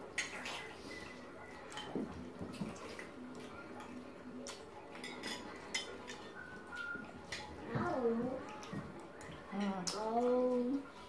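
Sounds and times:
chewing and sipping: 0.0s - 11.0s.

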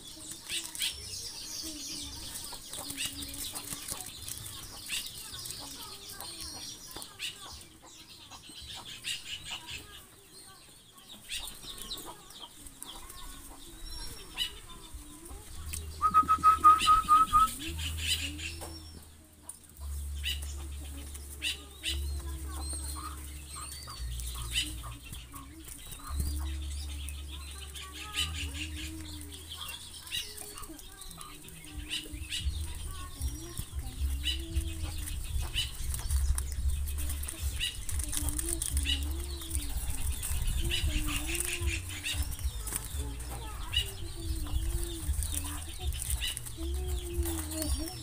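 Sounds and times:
wings flapping: 0.0s - 7.4s, 20.2s - 48.0s
bird calls: 0.0s - 48.0s
birds pecking seed: 0.0s - 48.0s.

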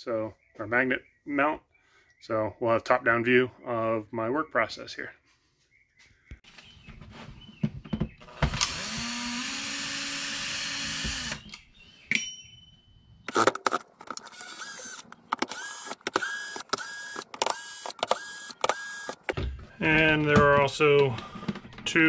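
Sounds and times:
power driver motor whining: 8.3s - 11.5s, 14.2s - 19.3s.

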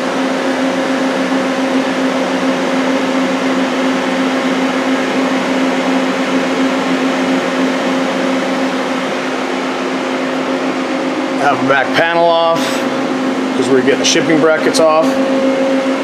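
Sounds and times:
machine electrical hum: 0.0s - 16.0s.

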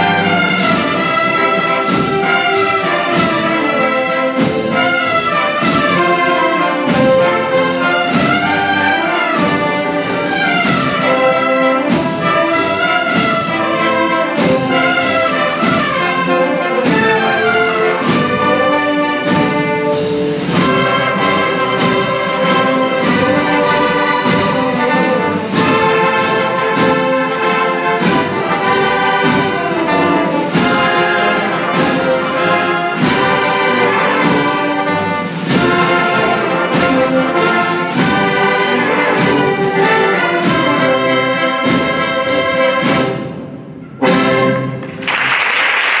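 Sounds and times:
steady drum beat: 0.0s - 44.9s
trumpets and trombones: 0.0s - 45.2s
wind band playing a march: 0.0s - 46.0s
applause: 44.6s - 46.0s.

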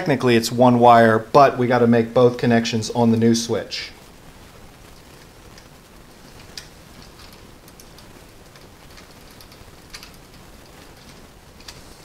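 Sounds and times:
low steady hiss: 0.0s - 12.0s
faint clicks and taps: 6.3s - 11.8s.

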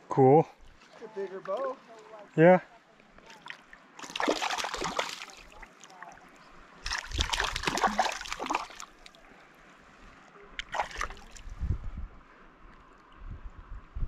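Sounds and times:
fish splashing in shallow water: 3.2s - 9.2s, 10.6s - 11.6s.

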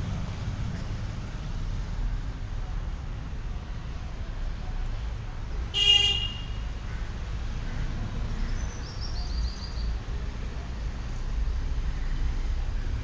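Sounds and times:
road traffic rumble: 0.0s - 13.0s
vehicle horn toot: 5.8s - 6.6s.

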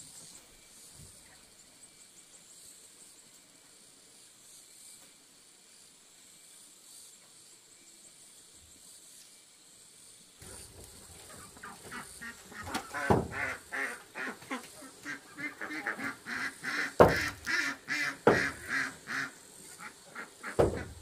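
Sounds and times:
sharp knocks: 10.4s - 13.6s, 17.0s - 17.6s, 18.2s - 19.0s, 20.5s - 21.0s
fowl calling rapidly: 10.4s - 21.0s.

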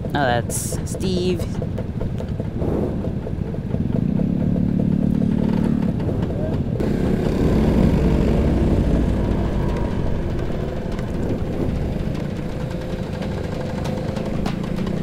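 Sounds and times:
scooter engines running: 0.0s - 15.0s.

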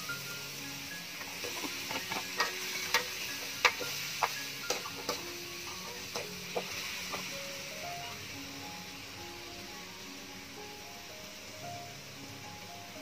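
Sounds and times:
oil sizzling: 0.0s - 13.0s
metal spatula scraping steel wok: 1.2s - 7.3s.

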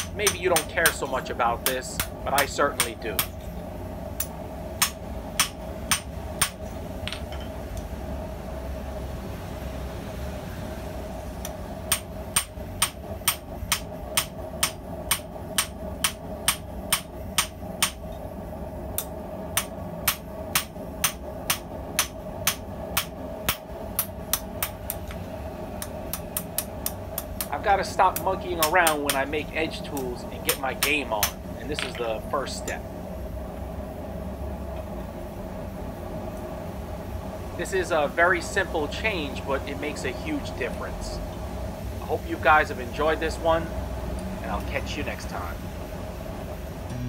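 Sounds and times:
hammer striking steel on anvil: 0.0s - 1.0s, 4.2s - 7.5s, 11.9s - 18.0s.

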